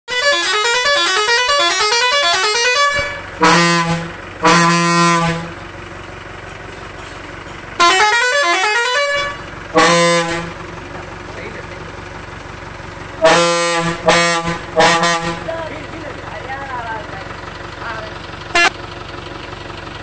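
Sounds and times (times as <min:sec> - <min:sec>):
multi-tone air horn: 0:00.1 - 0:05.6, 0:07.8 - 0:10.6, 0:13.2 - 0:15.6, 0:18.5 - 0:18.7.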